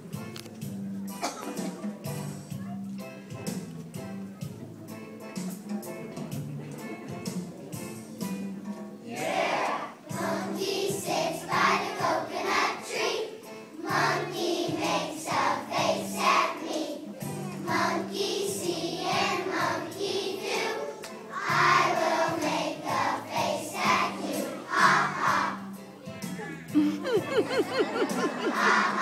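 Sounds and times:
children's choir singing: 9.0s - 25.9s, 27.2s - 29.0s.

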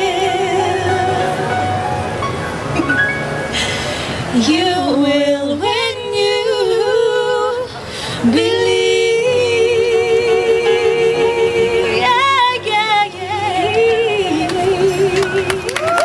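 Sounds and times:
women singing in harmony: 0.0s - 2.1s, 3.6s - 16.0s
upright piano accompaniment: 0.0s - 5.0s.

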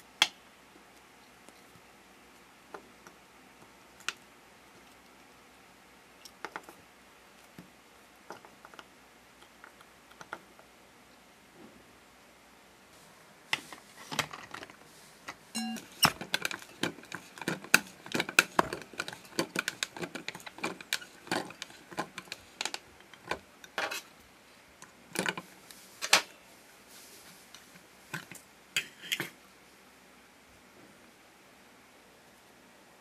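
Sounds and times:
plastic toy clicks and knocks: 15.6s - 24.0s.

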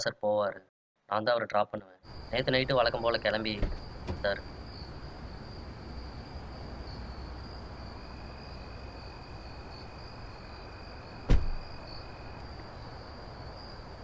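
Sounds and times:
crickets chirping: 2.1s - 14.0s
car door shutting: 3.5s - 4.4s, 11.3s - 11.7s.

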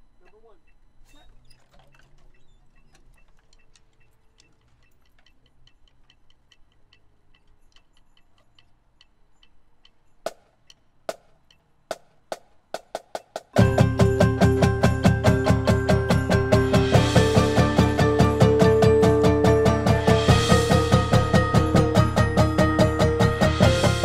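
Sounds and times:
metronome ticking: 0.0s - 1.0s, 2.3s - 24.0s
sharp count-in clicks: 0.2s - 1.3s, 2.4s - 24.0s
drumline and marimbas playing: 11.9s - 24.0s.

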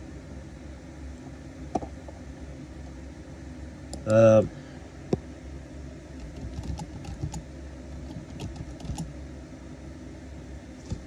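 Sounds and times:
steady low hum: 0.0s - 11.0s
keyboard typing clicks: 6.2s - 7.4s, 8.0s - 9.1s.

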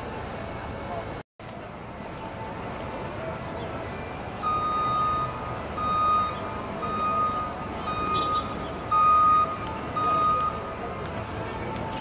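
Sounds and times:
outdoor background noise: 0.0s - 12.0s
electronic beep: 4.4s - 10.7s.

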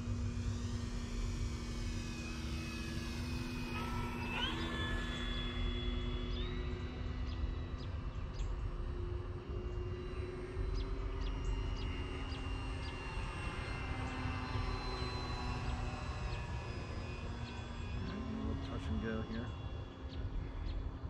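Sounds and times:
model airplane propellers droning: 0.0s - 21.0s.

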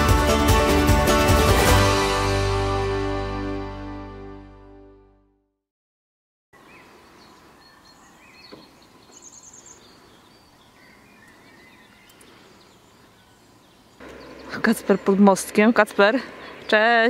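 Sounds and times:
faint bird chirps: 6.6s - 15.2s.

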